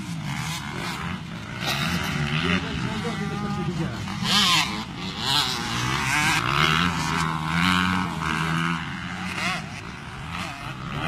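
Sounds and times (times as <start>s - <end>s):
dirt bike engines revving: 0.0s - 11.0s.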